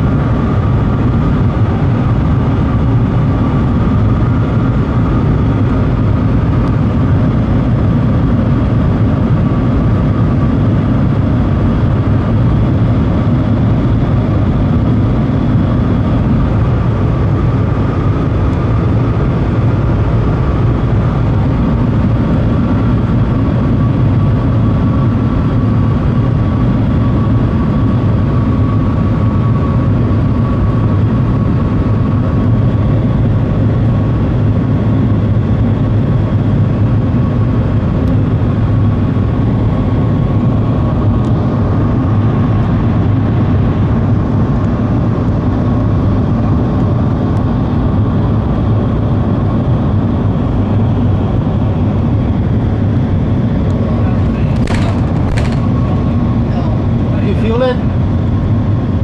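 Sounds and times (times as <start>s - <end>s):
train cabin rumble: 53.6s - 58.0s.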